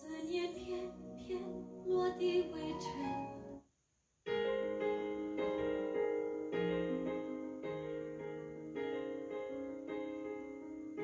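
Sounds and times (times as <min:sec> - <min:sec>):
woman singing recorded song: 0:00.0 - 0:03.4
piano chords: 0:00.3 - 0:03.6, 0:04.3 - 0:11.0.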